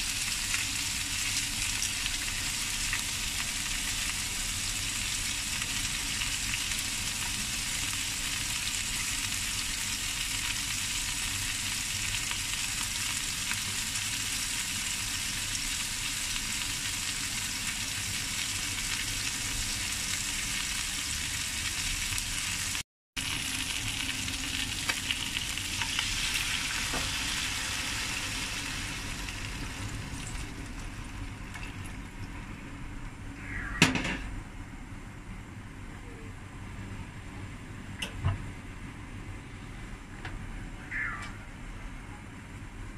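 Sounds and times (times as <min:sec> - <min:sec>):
fish sizzling in hot oil: 0:00.0 - 0:32.0.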